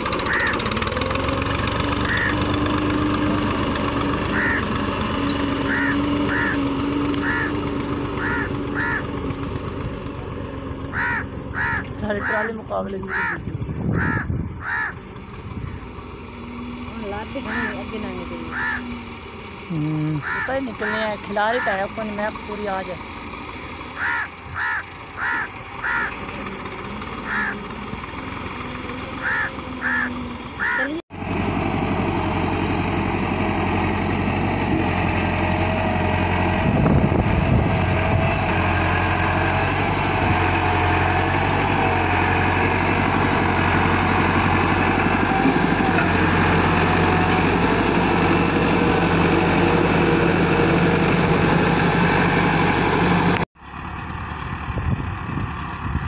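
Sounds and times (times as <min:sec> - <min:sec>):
distant tractor: 0:00.0 - 0:56.0
tractor diesel engine running: 0:00.0 - 0:56.0
bird calls: 0:00.2 - 0:00.6, 0:02.0 - 0:02.4, 0:04.3 - 0:09.5, 0:10.9 - 0:15.0, 0:18.5 - 0:19.0, 0:24.0 - 0:27.7, 0:29.0 - 0:30.9.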